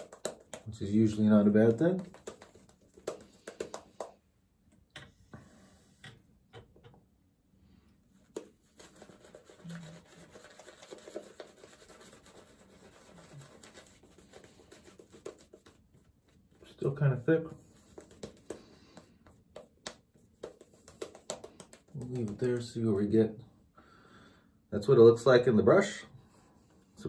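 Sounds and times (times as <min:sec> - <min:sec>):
shaving brush rubbing on stubble: 0:08.2 - 0:22.7.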